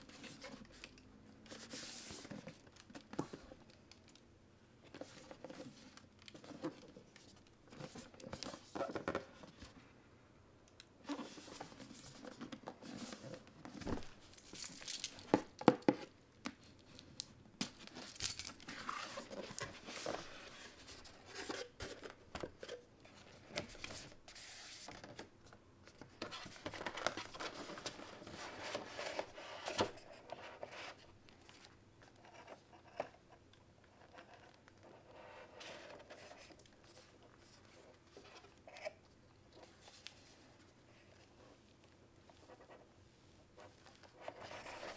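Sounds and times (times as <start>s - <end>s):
cardboard and paper rustling: 11.1s - 15.5s, 18.0s - 25.3s, 25.9s - 33.1s.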